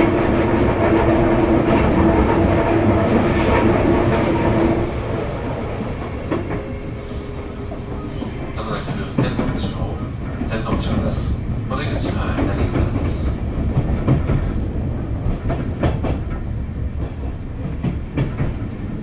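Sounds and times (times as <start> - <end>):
train rolling rumble: 0.0 - 19.0.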